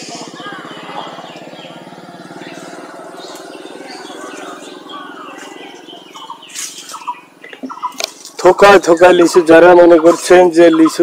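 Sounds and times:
small engine pulsing: 0:00.0 - 0:08.3
birds chirping: 0:00.0 - 0:11.0.

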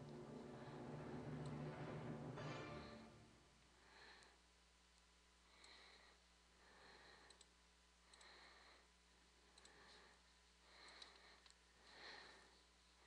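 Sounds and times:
soft hiss: 0:00.0 - 0:13.0
computer mouse clicks: 0:07.2 - 0:08.3, 0:09.5 - 0:09.8.

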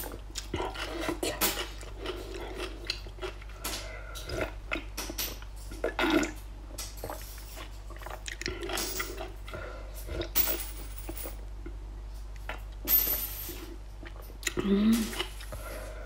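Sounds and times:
person sipping and swallowing soup: 0:07.0 - 0:10.3, 0:14.0 - 0:16.0.

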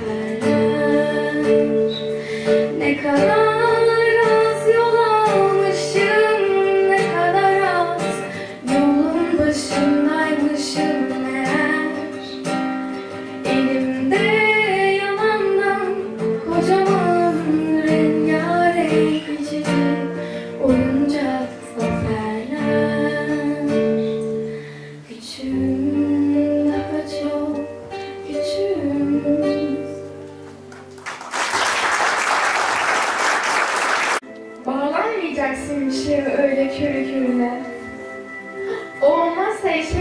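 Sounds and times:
woman singing: 0:00.0 - 0:12.5, 0:13.4 - 0:30.3, 0:34.7 - 0:40.0
acoustic guitar: 0:00.0 - 0:31.9, 0:33.4 - 0:40.0
audience applause: 0:30.7 - 0:34.2.

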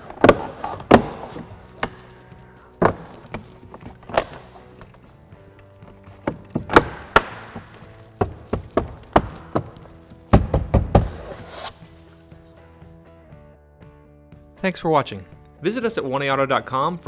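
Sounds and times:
quiet background music: 0:00.0 - 0:17.0
plastic clips snapping into place: 0:02.8 - 0:07.7.

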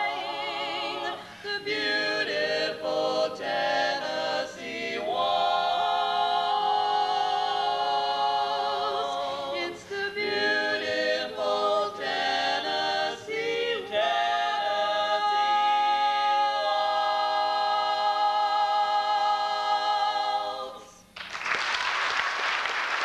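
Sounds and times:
quartet singing a cappella: 0:00.0 - 0:21.0
audience applause: 0:21.2 - 0:23.0.

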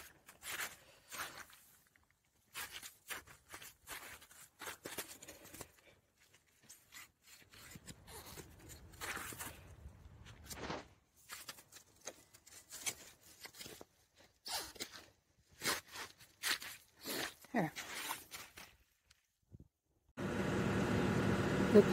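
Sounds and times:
footsteps crunching in wet snow: 0:00.0 - 0:07.0, 0:14.8 - 0:19.0.

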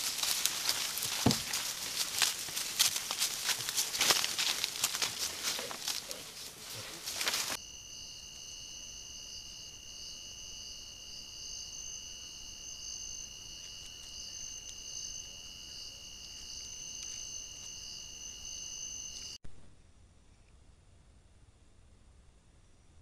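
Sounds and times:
loud rustling scuffle: 0:00.0 - 0:07.6
insects trilling: 0:00.0 - 0:19.4.

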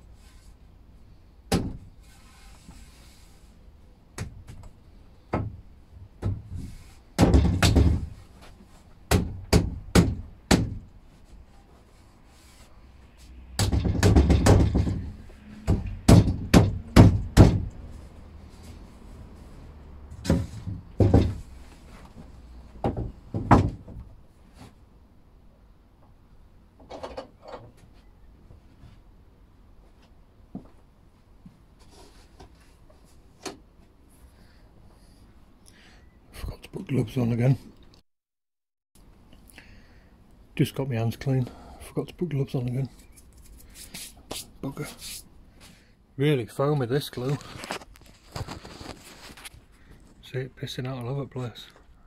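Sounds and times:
wooden knocks and thuds: 0:05.3 - 0:08.2, 0:09.1 - 0:10.9, 0:13.6 - 0:17.8, 0:20.1 - 0:24.2
wood scraping: 0:47.2 - 0:49.9.

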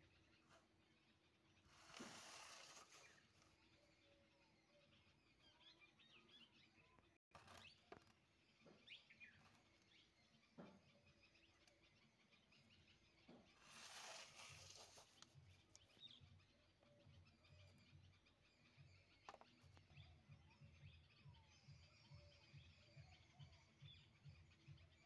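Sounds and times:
paper rustling: 0:01.7 - 0:03.4, 0:13.6 - 0:15.3
faint high chirps and clicks: 0:02.7 - 0:24.2.

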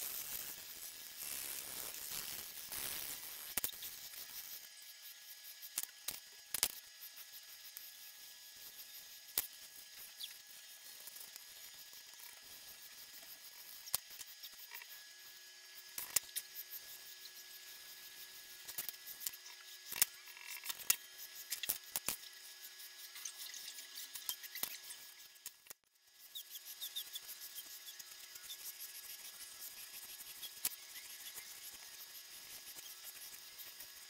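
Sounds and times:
pencil scratching on paper: 0:26.2 - 0:34.0.

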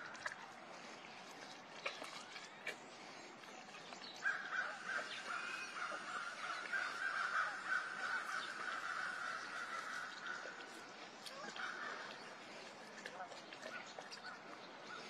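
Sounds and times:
cub gnawing and crunching bone: 0:01.3 - 0:05.4.

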